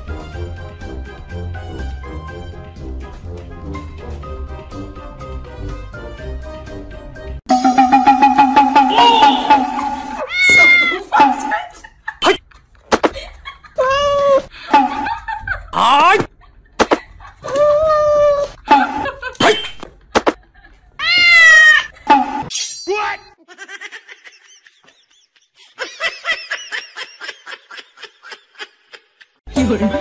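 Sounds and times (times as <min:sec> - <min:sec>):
cat meowing and yowling: 0:21.0 - 0:21.9.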